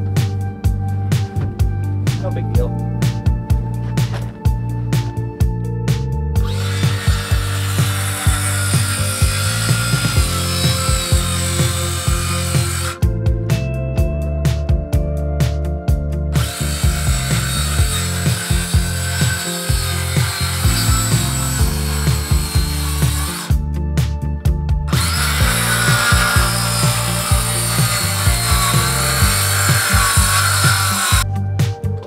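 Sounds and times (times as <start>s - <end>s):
background music with steady beat: 0.0s - 32.0s
circular saw cutting wood: 6.4s - 13.1s, 16.3s - 23.6s, 24.9s - 31.2s.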